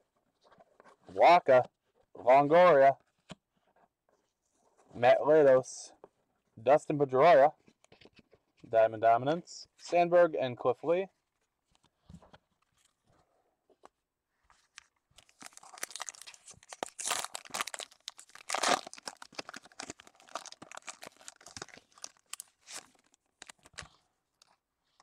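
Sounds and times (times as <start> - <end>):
cards rustling: 14.5 - 25.0
wrapper tearing and crinkling: 14.6 - 24.6.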